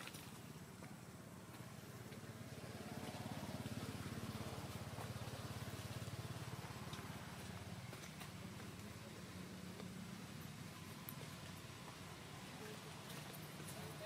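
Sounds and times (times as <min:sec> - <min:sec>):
small engine running: 0:02.1 - 0:08.3.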